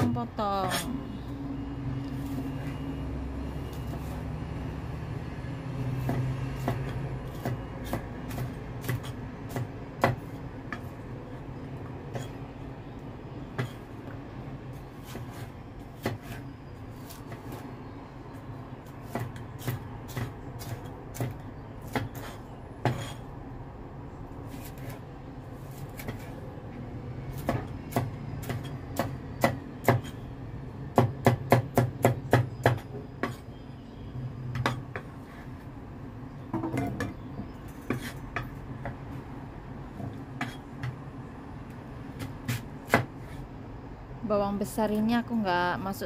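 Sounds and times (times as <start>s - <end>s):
cleaver chopping on wooden board: 6.0s - 10.9s, 16.0s - 16.4s, 19.0s - 23.2s, 27.3s - 30.2s, 30.9s - 33.4s, 42.2s - 43.1s.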